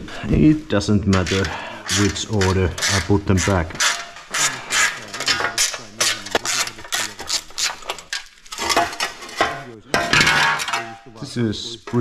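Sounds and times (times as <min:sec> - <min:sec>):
metal bolts clinking and rattling: 0:07.9 - 0:11.0.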